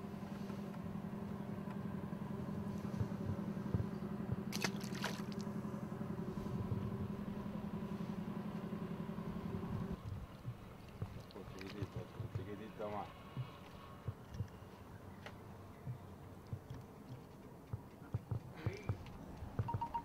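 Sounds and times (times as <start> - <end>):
engine hum: 0.0 - 20.0
splash in water: 4.5 - 5.5.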